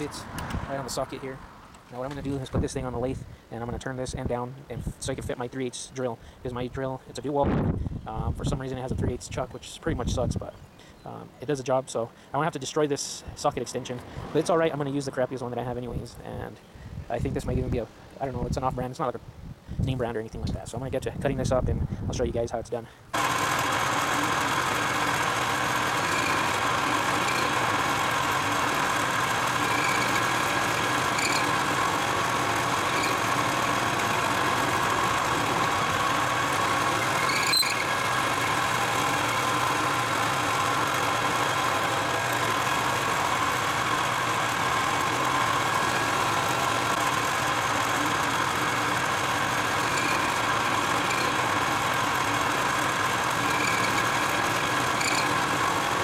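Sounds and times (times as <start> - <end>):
metal lathe whining: 23.2 - 56.0.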